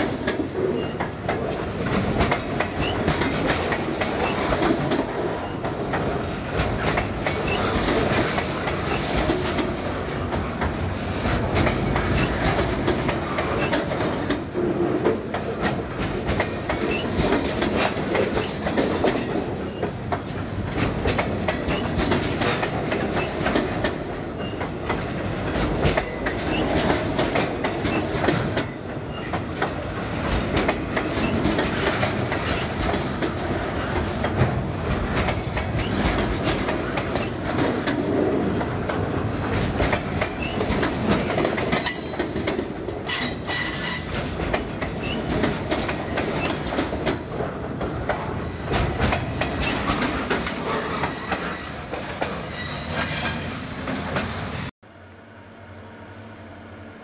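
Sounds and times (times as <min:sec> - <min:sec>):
train wheels clacking on rails: 0:00.0 - 0:54.5.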